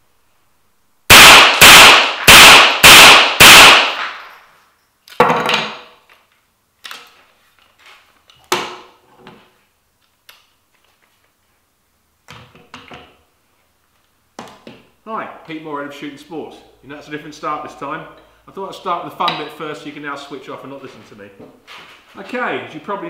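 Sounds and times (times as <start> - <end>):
rifle shots ringing in a room: 1.1 - 4.8.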